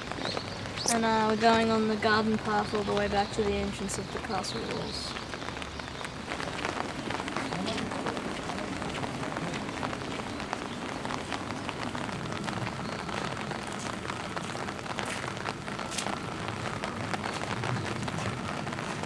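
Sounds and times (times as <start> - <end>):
rain on wet paving: 0.0 - 19.0.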